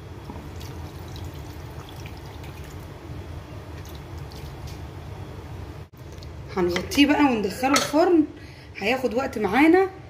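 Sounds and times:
water trickling onto food: 0.3s - 2.9s, 3.7s - 4.8s.

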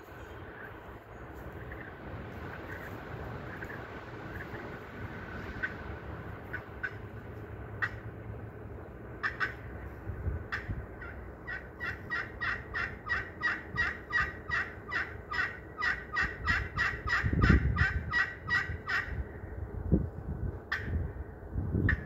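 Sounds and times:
turkey call yelps: 6.5s - 7.0s, 9.2s - 9.6s, 10.5s - 19.2s.

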